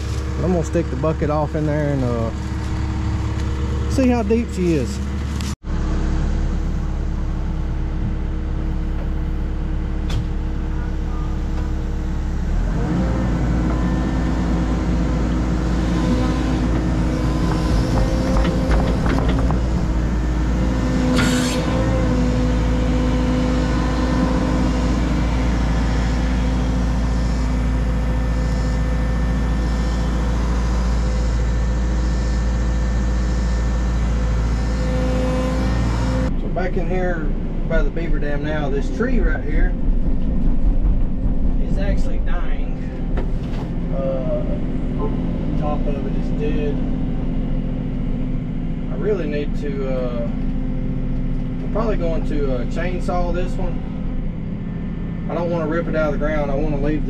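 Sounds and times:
diesel engine running: 0:00.0 - 0:57.0
hydraulics whining: 0:00.0 - 0:57.0.

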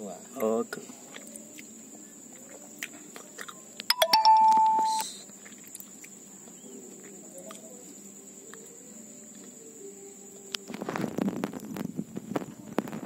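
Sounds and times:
faint high whine: 0:03.8 - 0:05.3
steady beep tone: 0:03.9 - 0:05.2.

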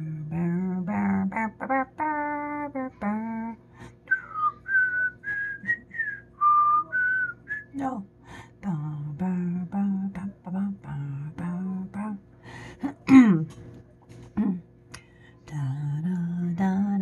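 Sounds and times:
person singing low notes: 0:00.0 - 0:03.6.

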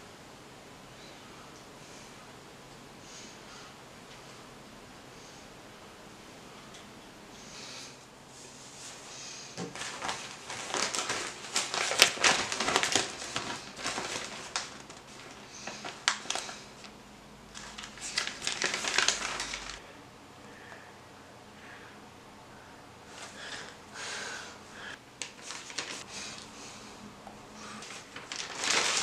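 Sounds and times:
newspaper pages rustling: 0:09.7 - 0:19.8, 0:25.2 - 0:26.5, 0:27.6 - 0:29.0.

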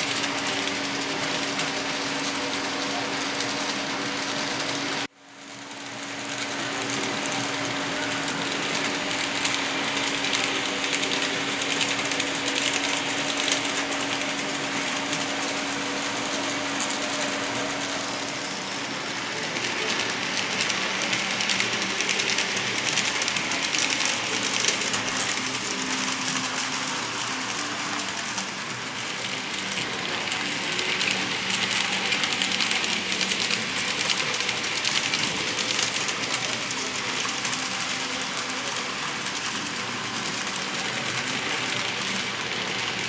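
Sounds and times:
model train motor humming: 0:00.0 - 0:43.0
small wheels clicking on track: 0:00.0 - 0:43.0.

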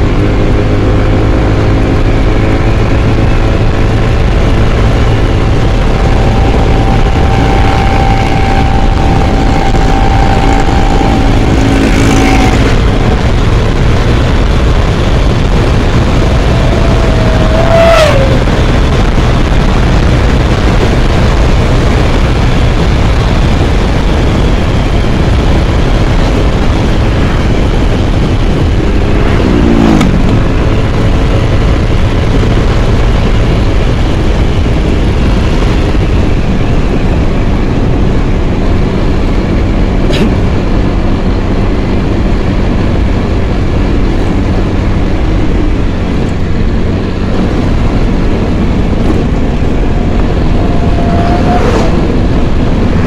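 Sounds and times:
scooter engine running: 0:00.0 - 0:40.0
road and wind noise: 0:00.0 - 0:53.0.

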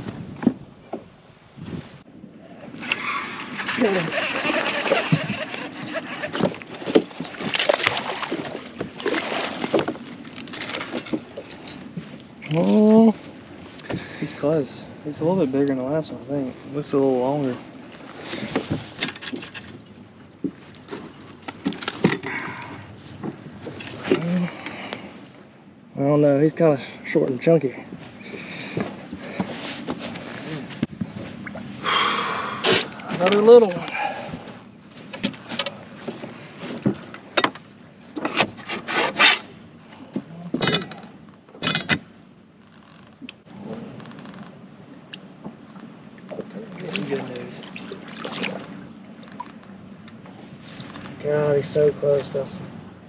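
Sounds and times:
handling knocks and clicks: 0:17.5 - 0:24.2.

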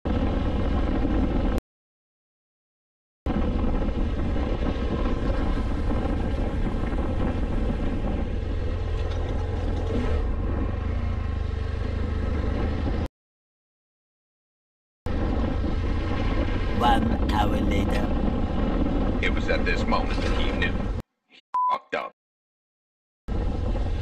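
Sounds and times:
wind and road noise: 0:00.0 - 0:01.6, 0:03.3 - 0:13.1, 0:15.1 - 0:21.0, 0:23.3 - 0:24.0
motorcycle engine running: 0:03.3 - 0:13.1.

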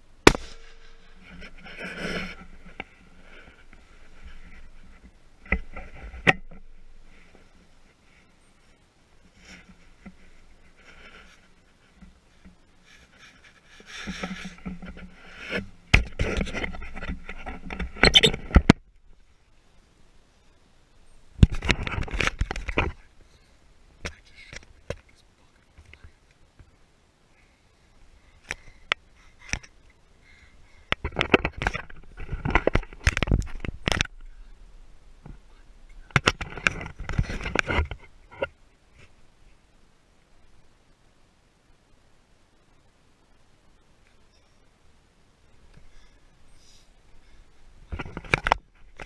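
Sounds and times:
clothing rustling against camera: 0:36.2 - 0:39.2.

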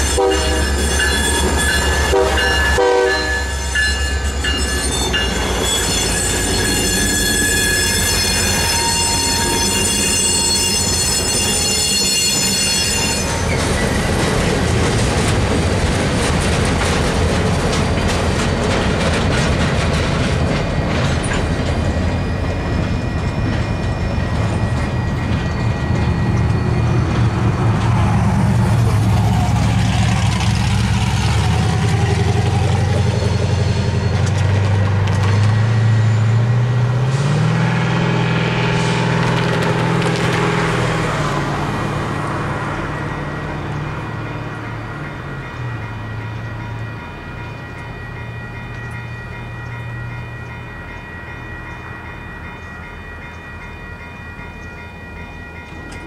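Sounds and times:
crossing bell ringing: 0:00.0 - 0:56.0
diesel locomotive engine hum: 0:00.0 - 0:56.0
brief high squeal: 0:03.4 - 0:13.9.

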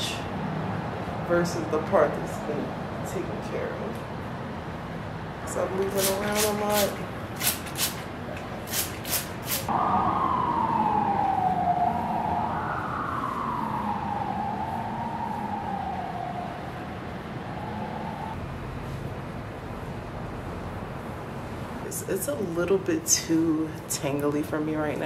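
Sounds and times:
spray bottle spritzes: 0:05.9 - 0:09.7
emergency vehicle siren wailing: 0:09.7 - 0:18.4.

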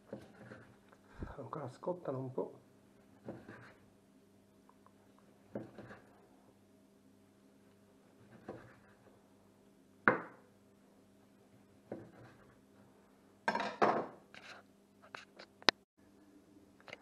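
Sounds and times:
knife slicing on cutting board: 0:05.6 - 0:06.1, 0:08.3 - 0:09.0.

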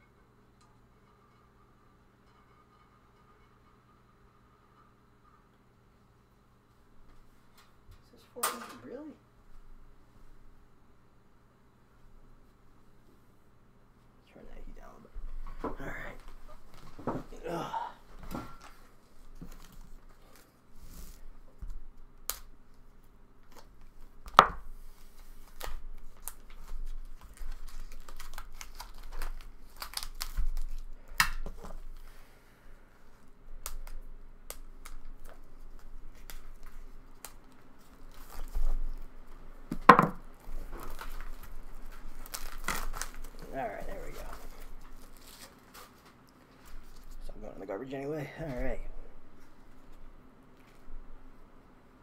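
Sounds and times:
packaging tearing and crinkling: 0:25.2 - 0:31.8, 0:33.6 - 0:39.0, 0:40.4 - 0:46.1.

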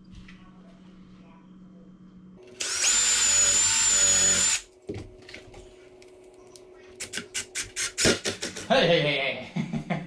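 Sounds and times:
drill motor whine: 0:02.5 - 0:04.7.

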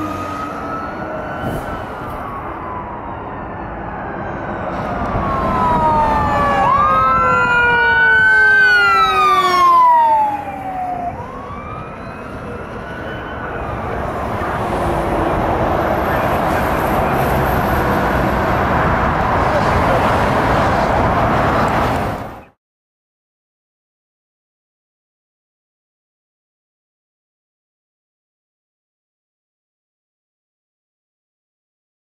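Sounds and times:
fire engine siren wailing: 0:00.0 - 0:22.5
road traffic rushing: 0:00.0 - 0:22.6.

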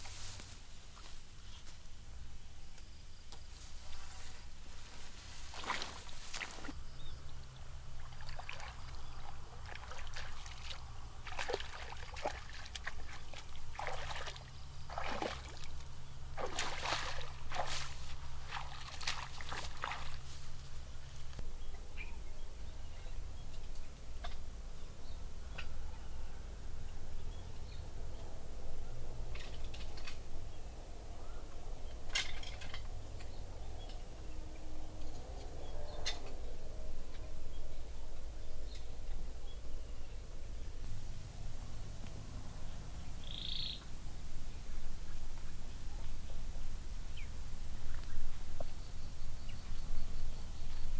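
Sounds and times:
muddy water sloshing and splashing: 0:05.3 - 0:21.4.

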